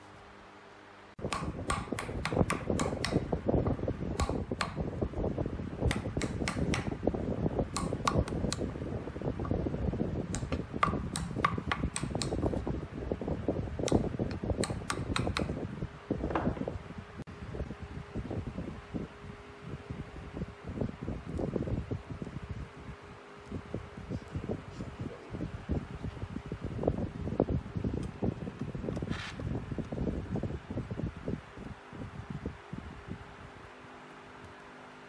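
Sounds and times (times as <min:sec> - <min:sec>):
sharp clicks and knocks: 0:01.2 - 0:03.3, 0:04.2 - 0:04.9, 0:05.9 - 0:07.0, 0:07.7 - 0:08.7, 0:10.3 - 0:12.6, 0:13.8 - 0:15.6.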